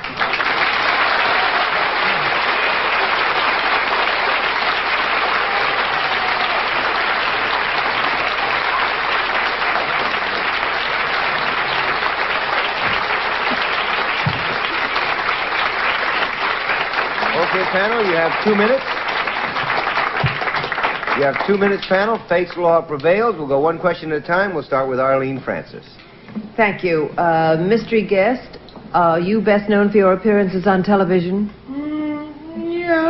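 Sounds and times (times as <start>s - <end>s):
audience applauding: 0.0s - 23.3s.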